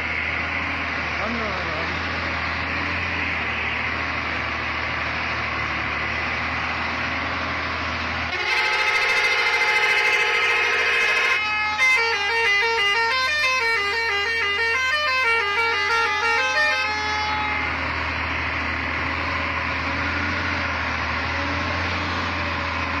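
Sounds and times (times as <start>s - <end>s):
truck engine and road noise: 0.0s - 23.0s
truck musical horn: 8.3s - 22.6s.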